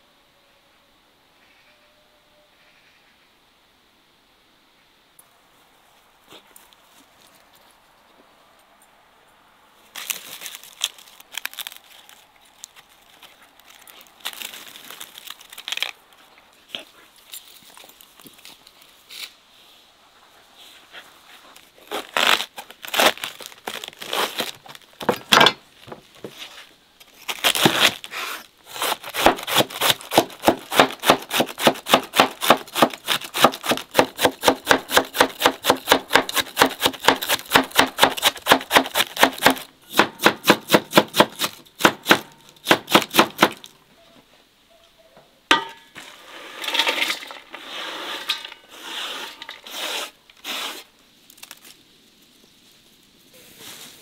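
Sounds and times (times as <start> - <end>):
cabbage rustling into bowl: 9.9 - 19.3, 20.9 - 25.3
knife chopping cabbage on board: 28.8 - 43.6.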